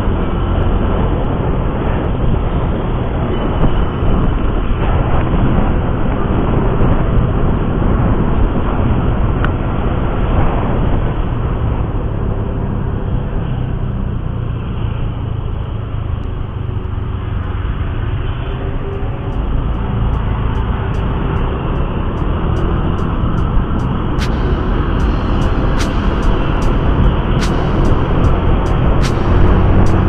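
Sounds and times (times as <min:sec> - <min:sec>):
road noise: 0:00.0 - 0:30.0
wind buffeting microphone: 0:00.0 - 0:30.0
sharp click: 0:24.2 - 0:30.0.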